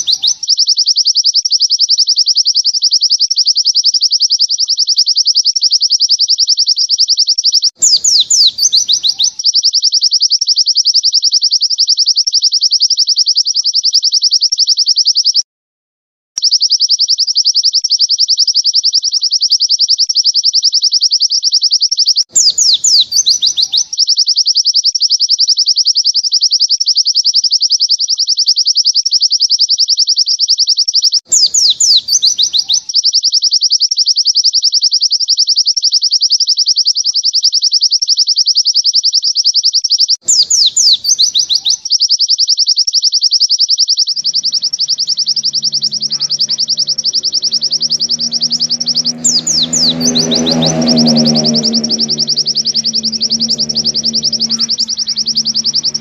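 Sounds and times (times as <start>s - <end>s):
bird fast high-pitched trill: 0.0s - 15.4s, 16.4s - 25.4s, 31.3s - 32.9s, 40.3s - 56.0s
bird downward-sweeping phrase: 44.1s - 56.0s
low drone: 44.2s - 56.0s.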